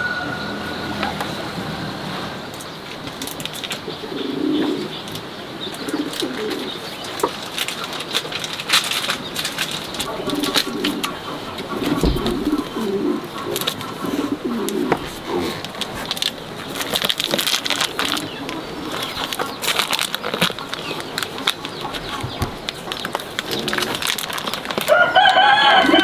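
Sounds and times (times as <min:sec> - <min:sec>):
dove cooing: 0:03.1 - 0:26.0
plastic bags crinkling: 0:07.0 - 0:14.2, 0:15.0 - 0:26.0.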